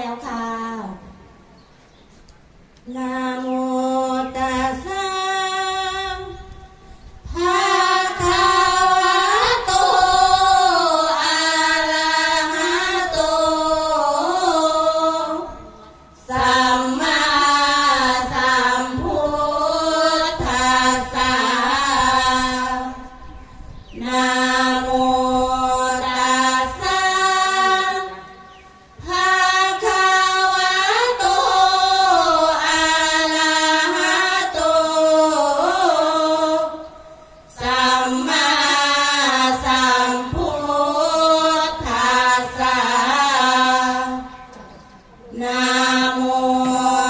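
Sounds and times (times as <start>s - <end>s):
women chanting in unison: 2.9s - 47.0s.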